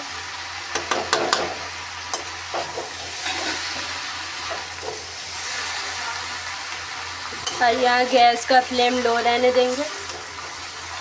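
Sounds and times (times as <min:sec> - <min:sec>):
frying sizzle: 0:00.0 - 0:11.0
spatula scraping metal pan: 0:02.6 - 0:05.6.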